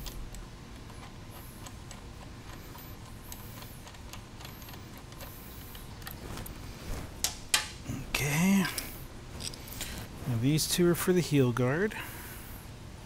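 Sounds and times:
low background noise: 0.0 - 13.0
light clicks of handled metal parts: 8.7 - 10.0.

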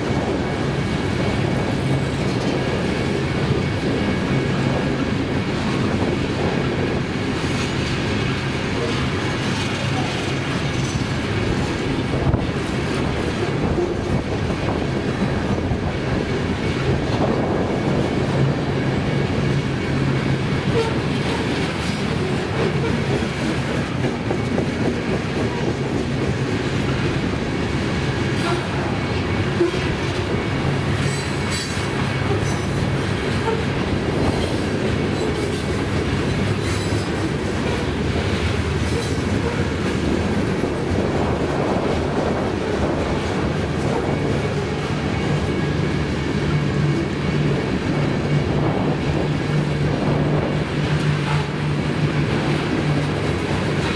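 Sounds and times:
freight train rolling past: 0.0 - 53.9
wheels clicking over rail joints: 0.1 - 53.9.

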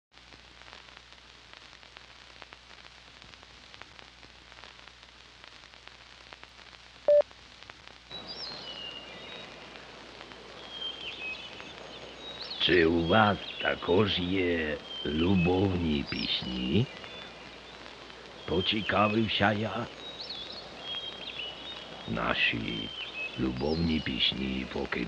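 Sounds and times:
film soundtrack crackle and hiss: 0.1 - 25.0
birds chirping: 8.1 - 25.0.

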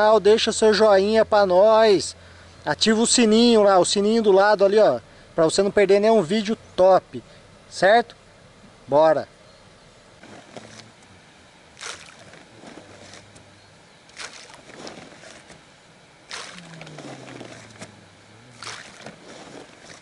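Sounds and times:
groundbait splashing into pond: 11.7 - 13.4, 14.1 - 15.6, 16.2 - 20.0.

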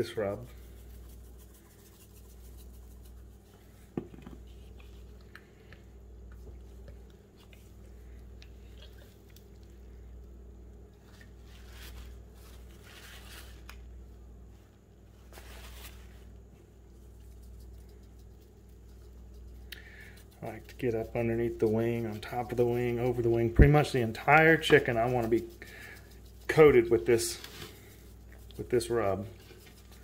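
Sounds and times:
hands rubbing seasoning into chicken: 0.0 - 9.9, 16.9 - 30.0.

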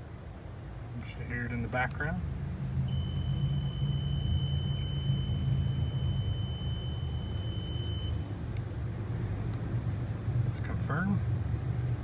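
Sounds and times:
low steady rumble: 0.0 - 12.0
high-pitched warning buzzer: 2.9 - 8.2.

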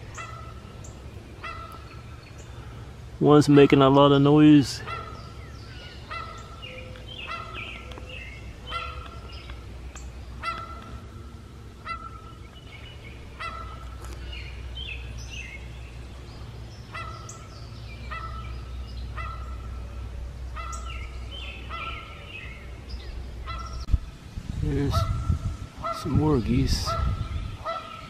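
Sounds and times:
goose honking: 0.0 - 0.6, 1.4 - 1.8, 6.0 - 8.0, 8.6 - 9.3, 10.4 - 11.2, 11.8 - 12.4, 13.4 - 14.2, 16.9 - 17.5, 18.1 - 18.5, 19.1 - 19.8, 20.5 - 21.0, 21.6 - 22.2, 23.4 - 23.8.

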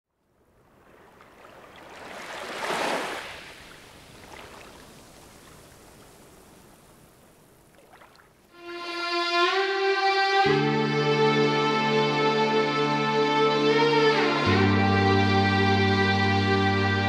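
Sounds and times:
ocean wave washing up shore: 0.7 - 8.4.

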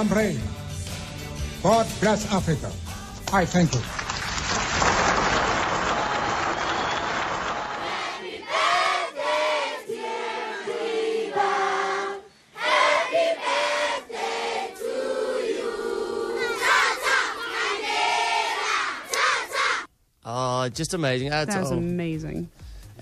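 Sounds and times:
crowd singing together: 7.6 - 19.9
crowd shouting: 12.6 - 19.9.

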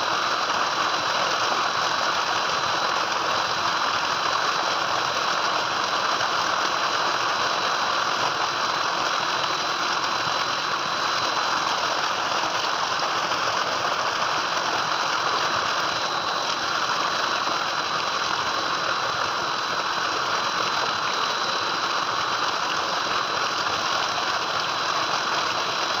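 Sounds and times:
water gushing into tank: 0.0 - 26.0
thin high whine: 7.2 - 24.8.

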